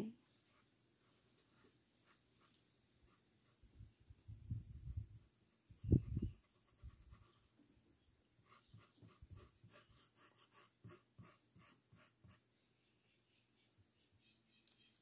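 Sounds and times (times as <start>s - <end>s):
paintbrush rubbing on cloth: 0.2s - 3.9s.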